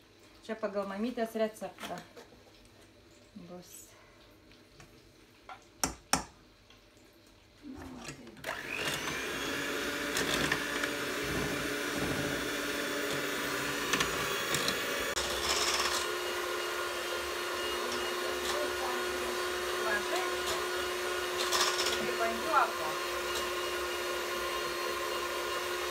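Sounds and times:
electric mixer whirring: 7.9s - 25.9s.

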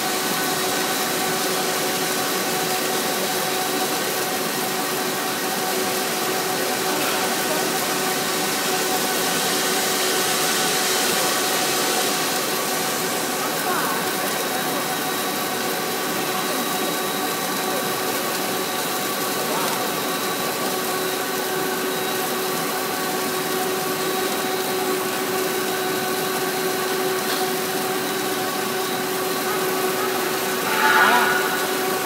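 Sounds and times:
machine motor whine: 20.0s - 32.0s.

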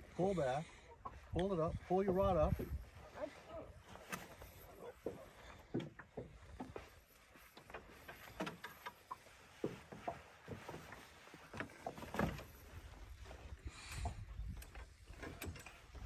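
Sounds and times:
knocks and clicks in metal boat: 5.0s - 12.8s, 13.8s - 16.0s.

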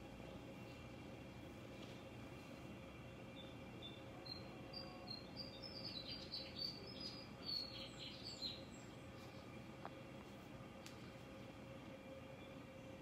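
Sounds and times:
faint steady hum: 0.0s - 13.0s
high-pitched bird chirps: 3.4s - 8.9s.

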